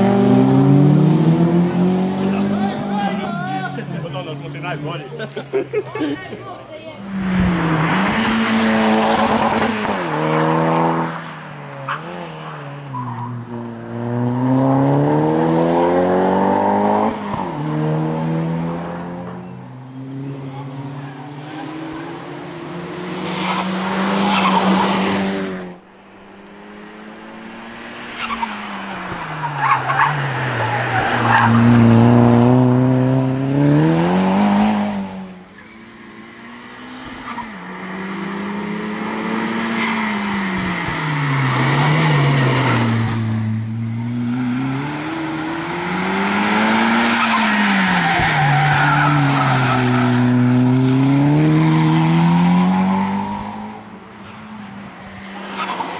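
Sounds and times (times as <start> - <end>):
car engine revving: 0.0 - 5.6, 7.0 - 55.9
tyres squealing: 43.9 - 50.7.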